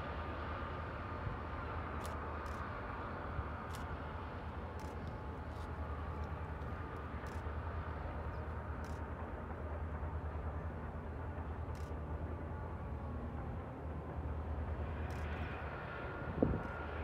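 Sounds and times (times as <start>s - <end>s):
diesel locomotive engine drone: 0.0s - 17.0s
train rumbling on rails: 0.0s - 17.0s.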